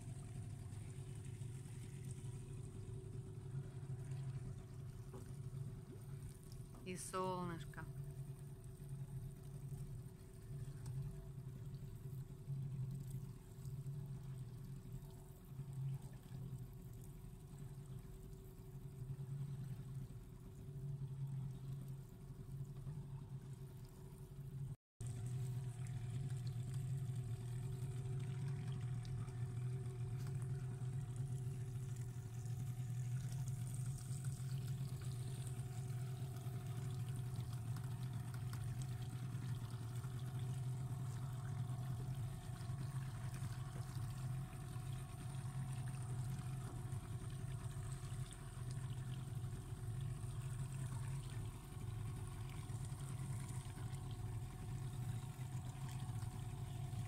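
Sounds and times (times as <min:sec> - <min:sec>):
outboard motor droning: 0:00.0 - 0:57.0
water washing along hull: 0:25.0 - 0:57.0.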